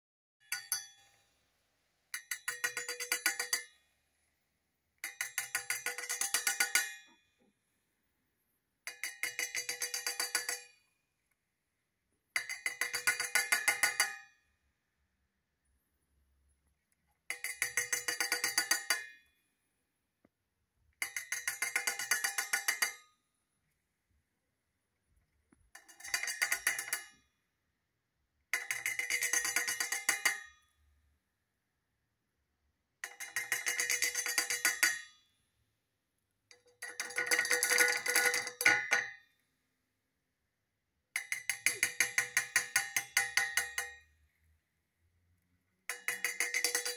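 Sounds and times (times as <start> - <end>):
bird beak tapping metal cup: 41.2 - 43.9, 45.9 - 46.9.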